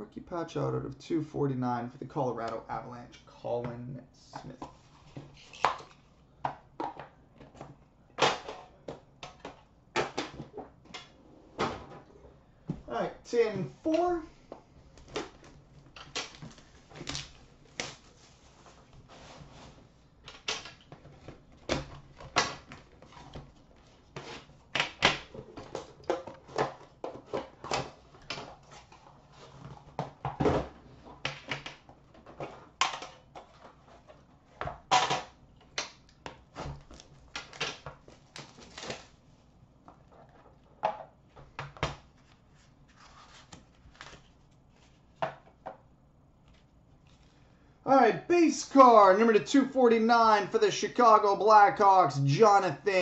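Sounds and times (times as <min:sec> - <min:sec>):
card packaging being handled: 0:36.8 - 0:39.2, 0:42.0 - 0:45.2.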